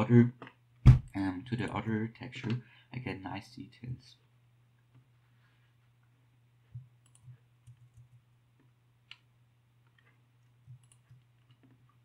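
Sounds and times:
keyboard and mouse clicks: 0:06.8 - 0:08.2, 0:09.9 - 0:11.9.

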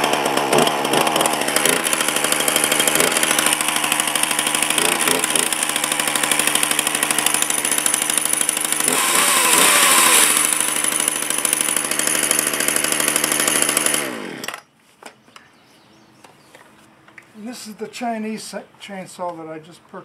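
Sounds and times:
chainsaw engine winding down: 0:00.0 - 0:14.7
chainsaw running and revving: 0:00.0 - 0:14.7.

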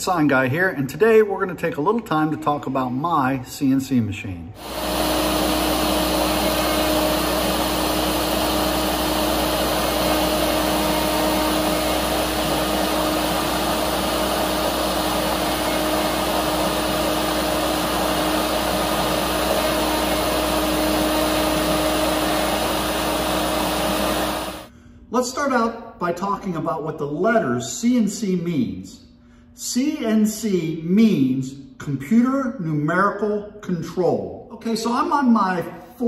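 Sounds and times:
bit engraving wood: 0:04.6 - 0:23.0
cnc router spindle whining: 0:04.6 - 0:24.7.

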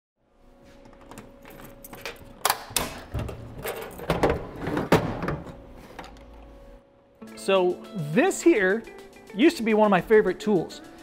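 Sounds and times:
drawers pulled open: 0:01.7 - 0:06.2.

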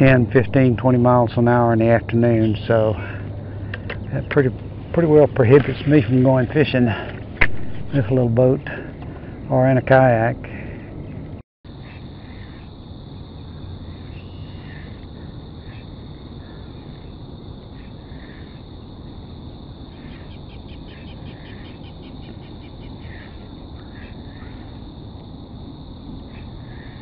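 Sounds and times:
low rumble: 0:00.0 - 0:09.7
birds calling: 0:00.0 - 0:24.9, 0:26.2 - 0:27.0
steady high buzz: 0:00.0 - 0:27.0.

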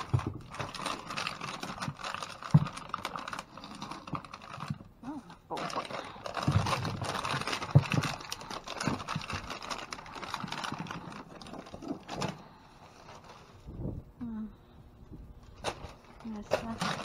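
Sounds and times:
rustling and clatter of packaging: 0:00.0 - 0:13.9, 0:15.4 - 0:17.0
dull thumps of items moved: 0:05.6 - 0:12.4.

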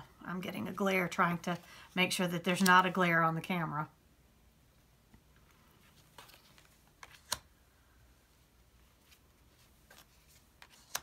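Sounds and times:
cards clicking and sliding: 0:06.1 - 0:07.5, 0:09.1 - 0:11.0.

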